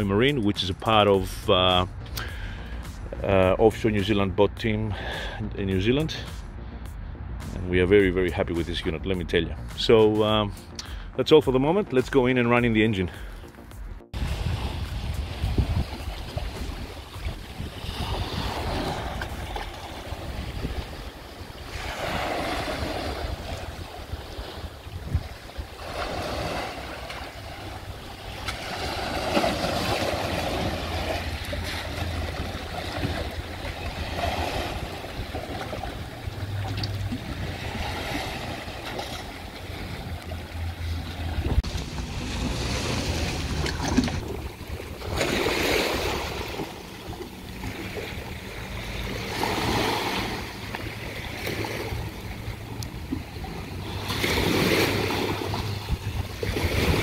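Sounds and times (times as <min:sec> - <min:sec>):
wind buffeting microphone: 0:14.1 - 0:48.3, 0:51.5 - 0:57.0
small waves washing: 0:14.2 - 0:57.0.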